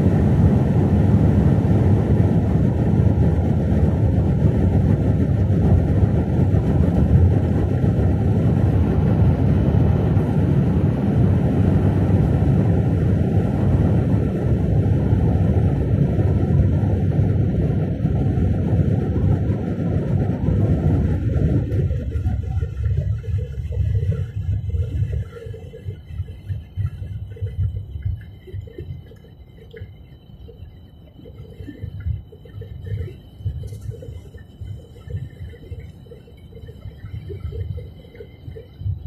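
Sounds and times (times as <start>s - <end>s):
tyre and engine rumble inside vehicle: 0.0s - 30.2s.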